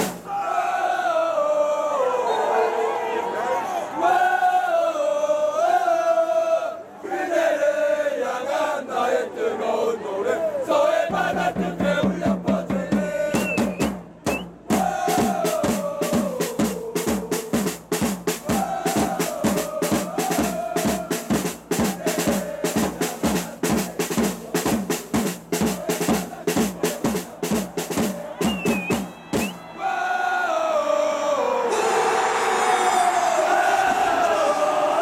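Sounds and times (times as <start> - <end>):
bass and snare drums beating: 0.0 - 0.3, 11.1 - 29.6
crowd singing: 0.0 - 17.8, 18.4 - 35.0.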